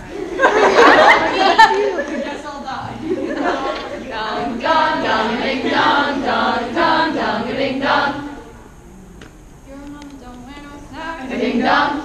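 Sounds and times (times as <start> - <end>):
group chanting in unison: 3.3 - 8.6, 11.2 - 12.0.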